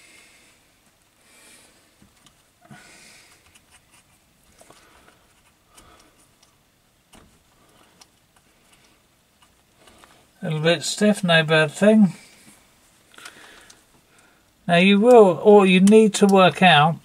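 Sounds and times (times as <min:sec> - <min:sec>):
small clicks and rustling: 0:02.0 - 0:02.5, 0:03.1 - 0:10.3, 0:12.3 - 0:14.3.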